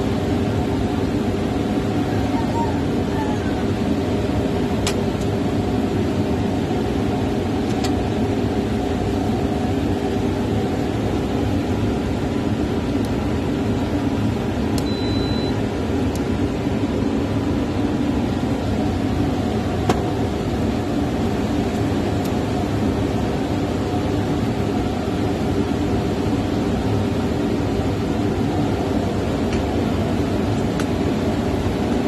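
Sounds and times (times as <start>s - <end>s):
generator engine drone: 0.0s - 32.0s
short high beep: 14.8s - 15.6s.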